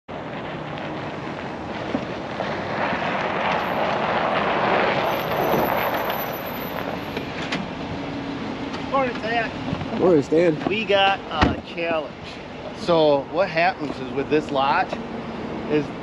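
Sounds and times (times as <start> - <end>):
tyres on packed snow: 0.1 - 7.8
truck engine: 0.1 - 16.0.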